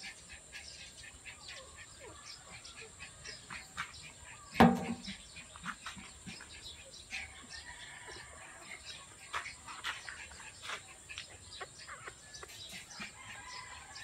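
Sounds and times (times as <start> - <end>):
birds chirping: 0.0 - 14.0
loud sharp knock: 4.6 - 5.1.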